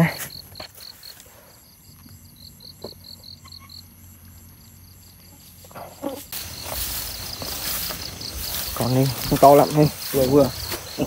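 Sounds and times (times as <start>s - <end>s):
crickets chirping: 0.0s - 11.0s
high insect trill: 0.0s - 11.0s
footsteps rustling through grass: 5.3s - 11.0s.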